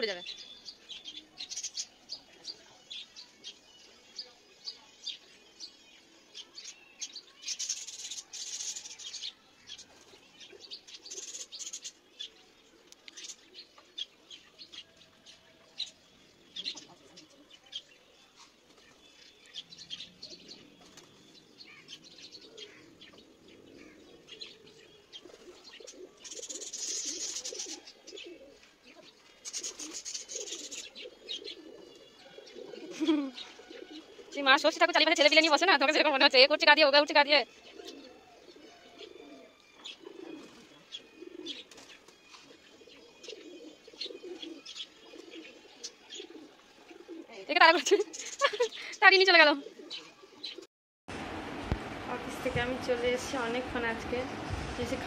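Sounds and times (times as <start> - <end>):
pigeons cooing: 7.5 - 15.0, 15.7 - 36.3, 37.4 - 50.7.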